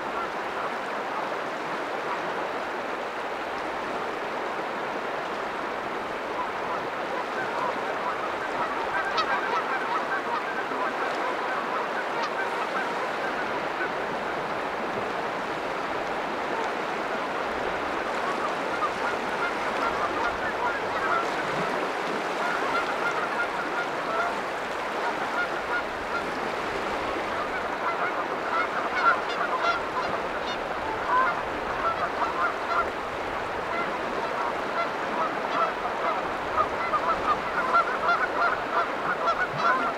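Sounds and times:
water washing on shore: 0:00.0 - 0:39.9
birds honking: 0:06.4 - 0:13.6, 0:18.2 - 0:26.2, 0:27.3 - 0:32.9, 0:33.7 - 0:39.9.

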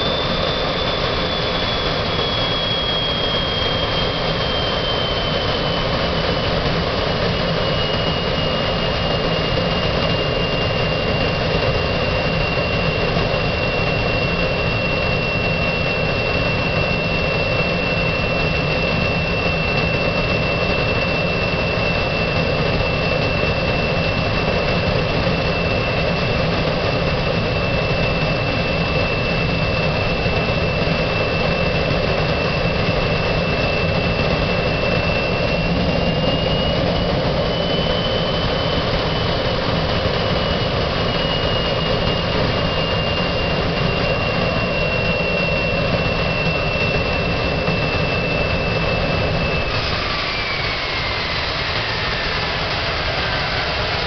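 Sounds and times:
jet engine roar and whine: 0:00.0 - 0:54.0.

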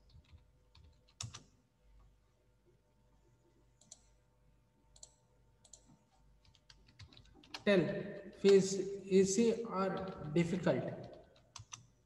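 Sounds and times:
keyboard clicks: 0:00.0 - 0:01.5, 0:03.8 - 0:04.1, 0:04.9 - 0:08.7, 0:09.8 - 0:11.9
faint steady hum: 0:00.0 - 0:12.0.

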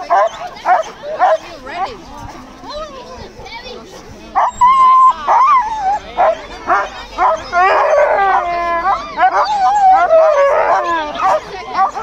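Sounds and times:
dog howling: 0:04.4 - 0:12.0
dogs yelping and whining: 0:04.4 - 0:12.0.

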